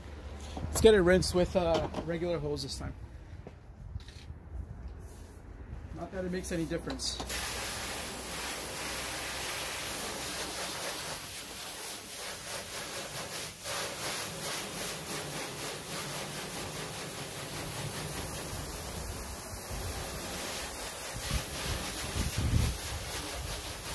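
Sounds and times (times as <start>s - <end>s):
hose water spraying on car: 6.0s - 23.9s.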